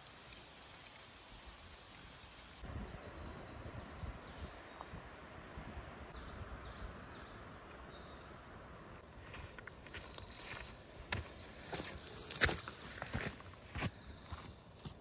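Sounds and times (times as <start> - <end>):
small birds chirping: 6.2 - 15.0.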